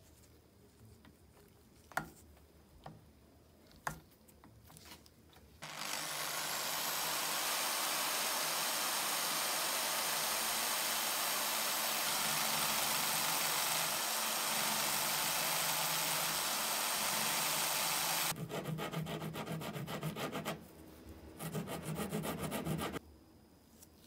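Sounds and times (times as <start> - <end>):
drill press motor running: 5.6 - 18.3.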